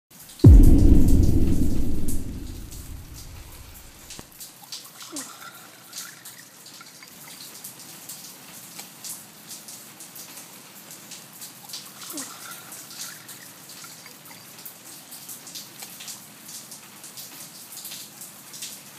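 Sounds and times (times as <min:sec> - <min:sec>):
water dripping: 0:00.5 - 0:03.9.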